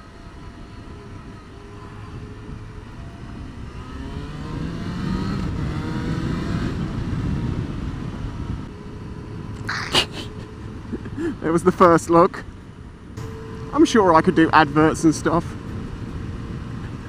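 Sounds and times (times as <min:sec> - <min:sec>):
motorcycle engine accelerating: 0:00.7 - 0:09.7, 0:13.2 - 0:17.0.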